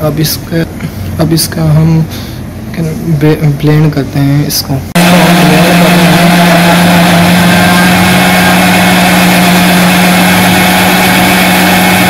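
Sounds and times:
electric blender motor running: 0:05.0 - 0:12.0.

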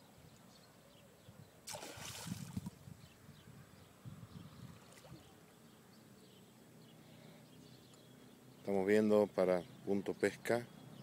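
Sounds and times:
faint bird chirps: 0:00.0 - 0:11.0
faint steady background noise: 0:00.0 - 0:11.0
splash on river surface: 0:01.6 - 0:02.8.

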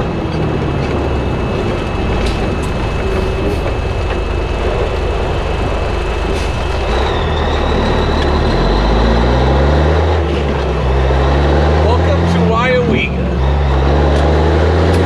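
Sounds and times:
faint high whine: 0:00.0 - 0:09.7
road noise: 0:00.0 - 0:15.0
truck diesel engine: 0:00.0 - 0:15.0.

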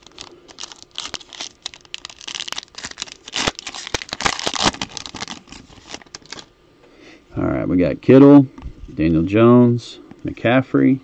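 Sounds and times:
foil wrapper tearing and crinkling: 0:00.0 - 0:06.5.

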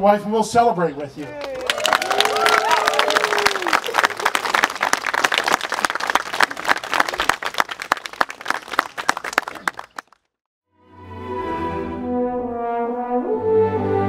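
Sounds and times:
crowd applauding: 0:01.2 - 0:10.2.

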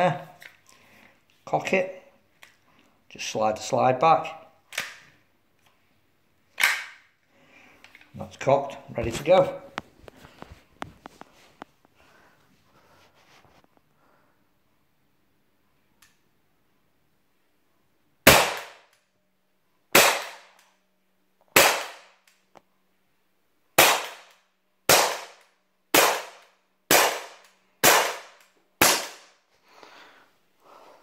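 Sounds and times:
air pistol cracks: 0:06.6 - 0:07.0, 0:23.8 - 0:29.3.

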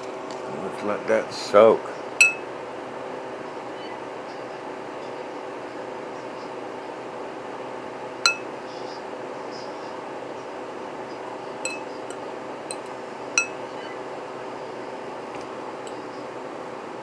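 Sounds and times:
steady hum: 0:00.1 - 0:03.0, 0:08.0 - 0:09.2, 0:11.3 - 0:17.0
fork clinking against ceramic bowl: 0:02.2 - 0:02.4, 0:08.3 - 0:08.5, 0:11.7 - 0:13.6.

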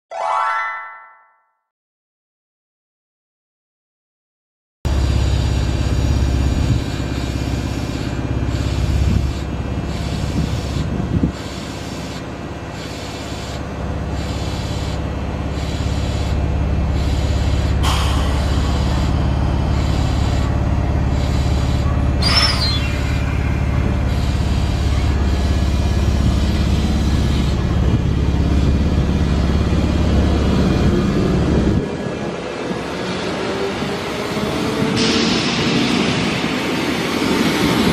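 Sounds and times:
electric train humming: 0:04.9 - 0:37.9
train motor rising: 0:04.9 - 0:37.9
air brake hiss: 0:17.8 - 0:19.2, 0:22.2 - 0:24.0, 0:35.0 - 0:36.7.

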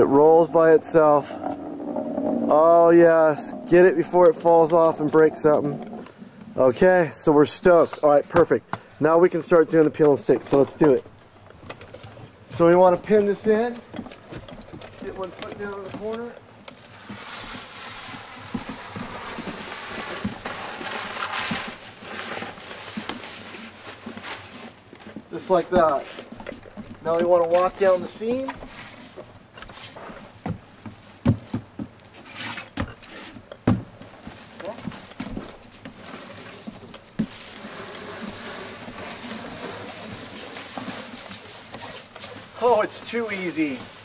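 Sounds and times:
underlayment peeling crackly rustle: 0:13.4 - 0:26.1, 0:34.0 - 0:44.0.

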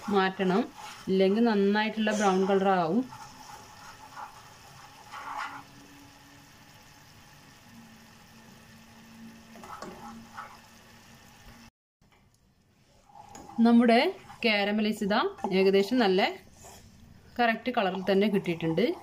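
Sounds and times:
wooden spatula scraping pan: 0:00.0 - 0:05.9, 0:09.5 - 0:10.7, 0:13.0 - 0:16.9, 0:17.7 - 0:19.0.

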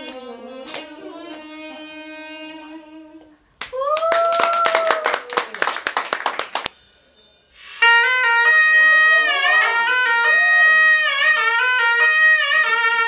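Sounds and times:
applause: 0:03.6 - 0:06.7
reedy pipe held notes: 0:07.5 - 0:13.0.

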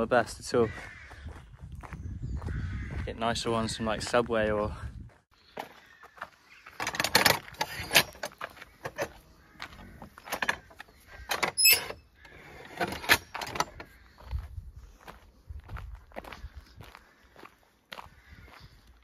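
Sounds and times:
short high squeak: 0:11.5 - 0:12.0.

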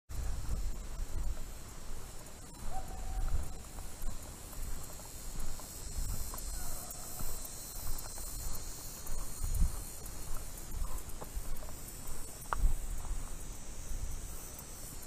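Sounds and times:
wind rumble on microphone: 0:00.1 - 0:04.8, 0:05.4 - 0:11.6
high insect drone: 0:00.1 - 0:15.0
faint hoot-like calls: 0:02.6 - 0:03.7, 0:06.5 - 0:07.2.

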